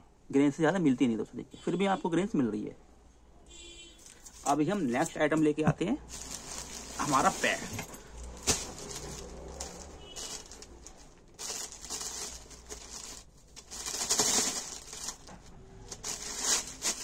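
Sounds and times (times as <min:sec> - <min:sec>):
rustling and crinkling of pads: 0:04.0 - 0:05.2, 0:06.1 - 0:17.0.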